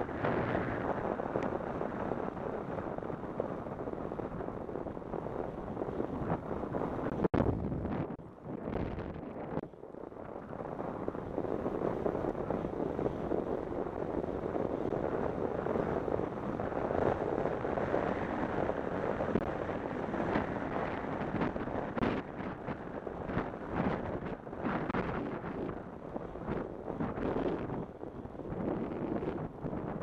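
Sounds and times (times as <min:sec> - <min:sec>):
bicycle tyres rolling on asphalt: 0:00.0 - 0:30.0
wind rushing over microphone: 0:00.0 - 0:30.0.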